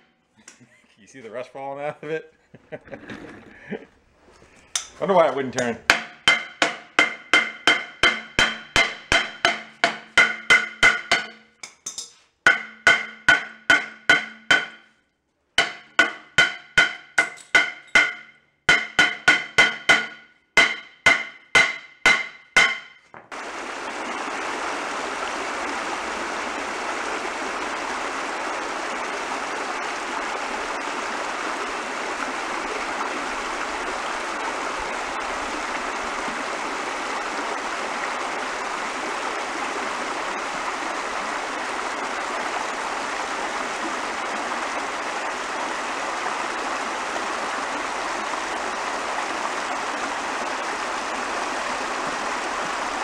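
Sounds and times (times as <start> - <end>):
stream rushing over rocks: 5.9 - 11.4, 15.6 - 53.0
metal drum ringing: 5.9 - 14.8, 15.6 - 23.0
hammer striking metal drum: 5.9 - 14.9, 15.6 - 23.1.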